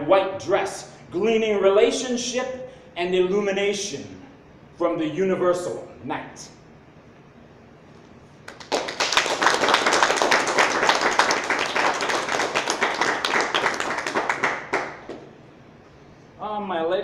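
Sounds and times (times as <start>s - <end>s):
audience applauding: 8.5s - 15.3s.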